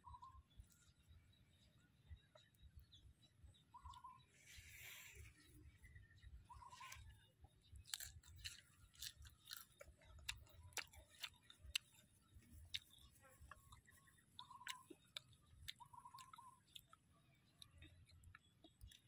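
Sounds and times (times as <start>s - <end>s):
chewing crunchy food: 6.1s - 19.0s
bird trilled call: 6.4s - 7.0s, 14.4s - 14.9s.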